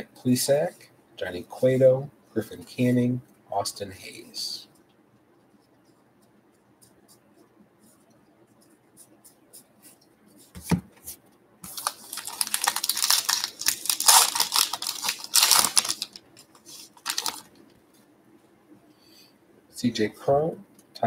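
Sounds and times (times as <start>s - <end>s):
card pack wrapper tearing: 11.7s - 17.5s.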